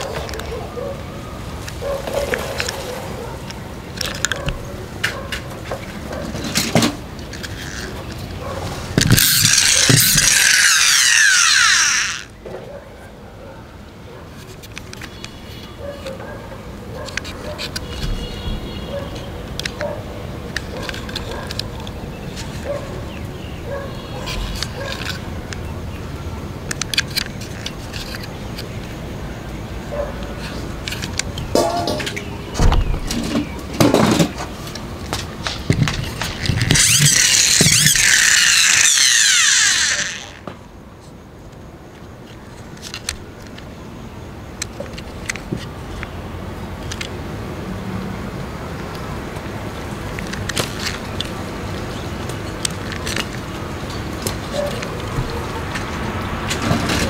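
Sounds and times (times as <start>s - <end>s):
plastic toy clicks and knocks: 9.0s - 12.4s, 24.3s - 25.7s, 26.6s - 29.0s, 30.8s - 32.3s, 33.2s - 40.5s, 42.8s - 43.7s, 50.1s - 51.4s.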